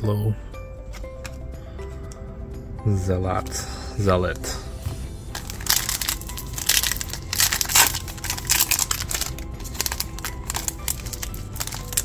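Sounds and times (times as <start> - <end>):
background music: 0.0 - 12.0
plastic wrapper crinkling: 5.3 - 12.0.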